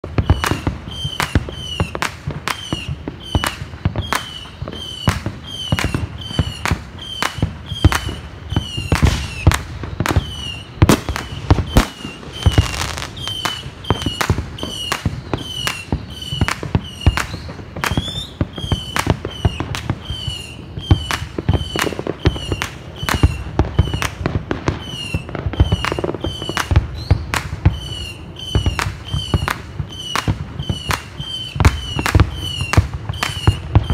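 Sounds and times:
fireworks bangs: 0.0s - 33.9s.

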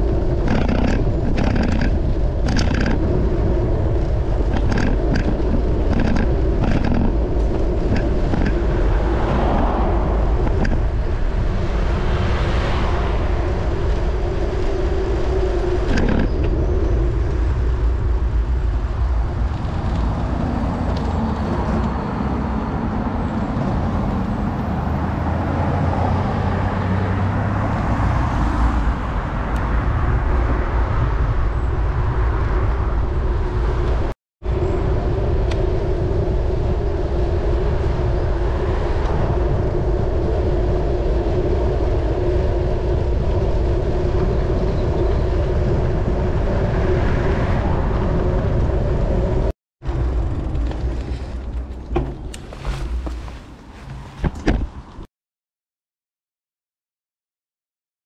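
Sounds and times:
car passing: 0.0s - 15.4s
road and tyre noise: 0.0s - 55.1s
wind on microphone: 0.0s - 55.1s.

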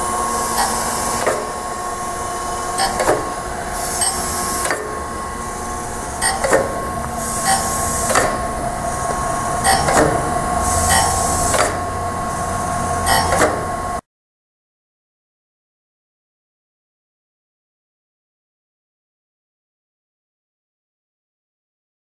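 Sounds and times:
surface grinder whine: 0.0s - 14.0s
high hiss bursts: 0.4s - 13.2s
hydraulic table knocking: 2.4s - 12.3s.

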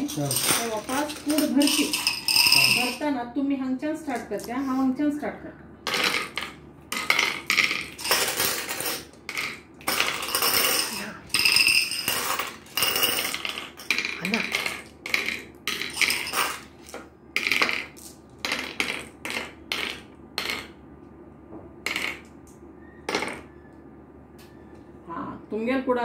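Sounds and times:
glass marbles clicking on wooden board: 0.3s - 3.0s, 5.9s - 16.7s, 17.4s - 20.8s, 21.9s - 22.4s, 23.1s - 23.5s.

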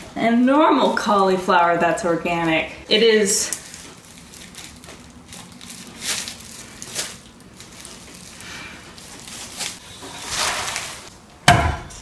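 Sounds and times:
plastic bag crinkling: 2.9s - 11.1s.

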